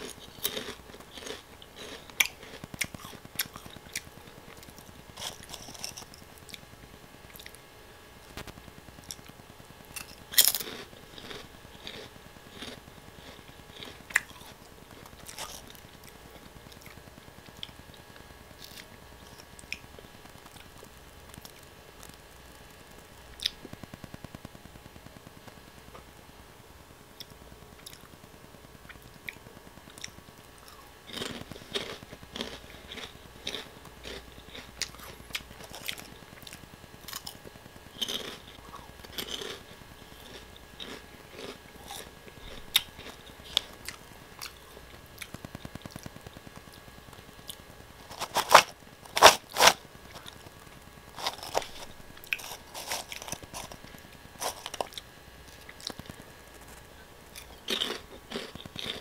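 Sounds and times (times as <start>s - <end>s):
crunching snack sticks: 0.0s - 6.6s, 9.9s - 17.8s, 29.3s - 44.6s, 47.4s - 50.4s, 51.1s - 59.0s.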